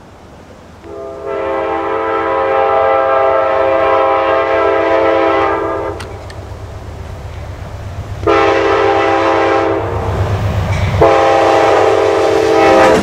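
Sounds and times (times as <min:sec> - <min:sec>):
train rumbling: 0:00.0 - 0:13.0
train air horn blast: 0:00.8 - 0:06.1, 0:08.2 - 0:10.2, 0:10.8 - 0:13.0.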